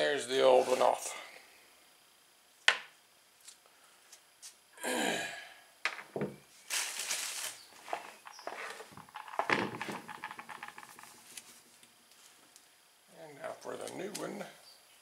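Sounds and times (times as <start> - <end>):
hands rustling parts: 6.6 - 12.6.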